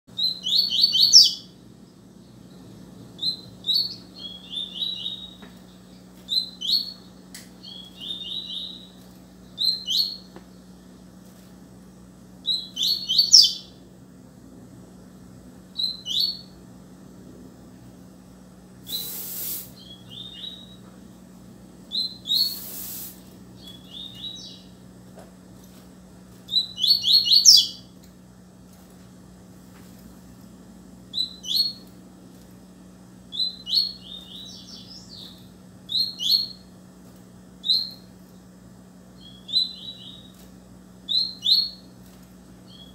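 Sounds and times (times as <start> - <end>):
faint steady hum: 0.1 - 42.9
bird twittering: 0.2 - 1.6, 3.2 - 5.5, 6.3 - 9.0, 12.4 - 13.8, 18.9 - 20.8, 21.9 - 24.8, 26.5 - 27.9, 33.3 - 36.7, 39.2 - 40.3, 41.1 - 41.9.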